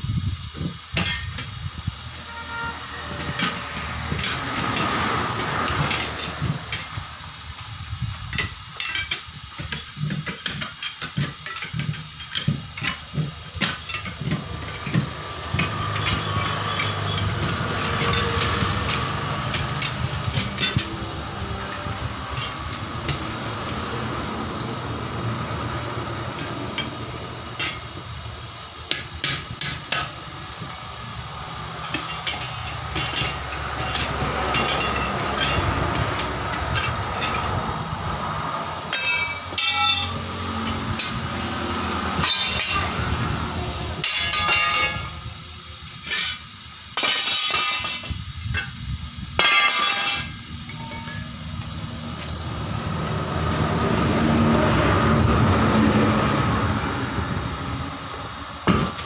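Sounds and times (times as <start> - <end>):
steady low rumble: 12.3 - 44.2
tyre lever clinking on steel rim: 30.6 - 31.4.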